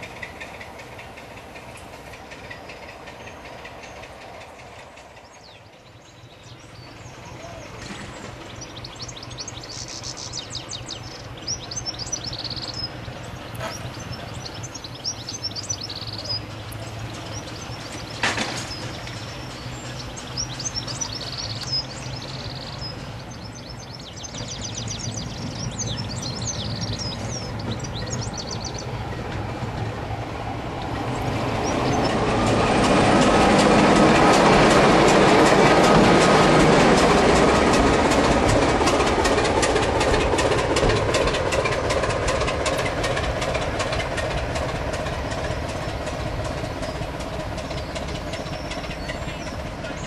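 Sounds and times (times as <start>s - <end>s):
diesel locomotive engine running: 0.0s - 50.0s
train wheels on rails: 0.0s - 50.0s
birds chirping: 2.3s - 33.3s, 41.4s - 50.0s.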